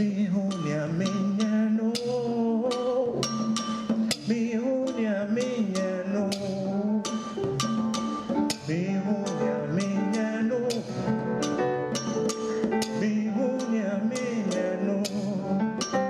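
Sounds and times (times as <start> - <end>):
man singing or humming: 0.0 - 7.5, 8.5 - 11.4, 12.5 - 16.0
acoustic guitar plucked: 0.0 - 16.0.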